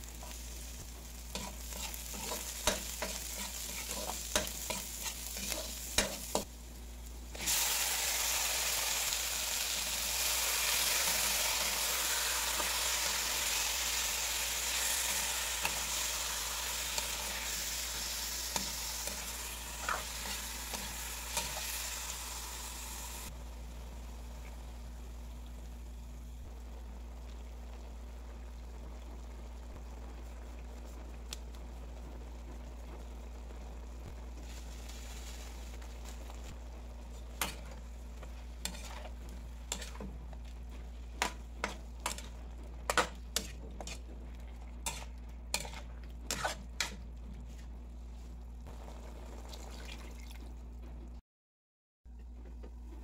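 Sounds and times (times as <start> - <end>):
meat sizzling in a wok: 0.0 - 47.6
metal spatula scraping a pan: 1.3 - 6.5, 18.5 - 21.8, 38.6 - 40.1, 41.2 - 44.1, 44.8 - 47.0.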